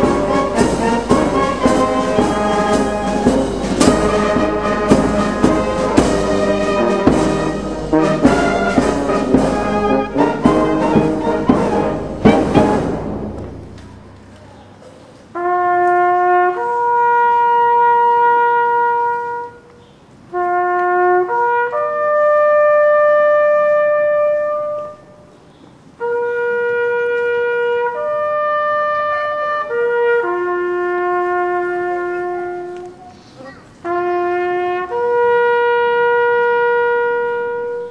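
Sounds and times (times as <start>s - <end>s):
solo brass bugle call: 0.0s - 14.1s, 15.4s - 19.7s, 20.3s - 25.2s, 26.0s - 33.0s, 33.8s - 37.9s.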